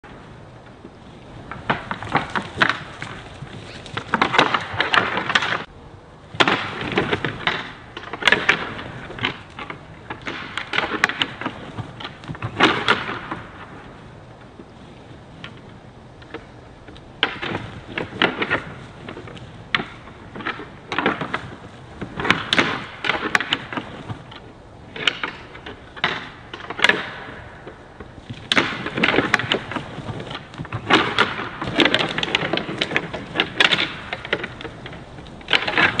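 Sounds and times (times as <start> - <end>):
elk antlers clacking together: 15.4 - 36.0.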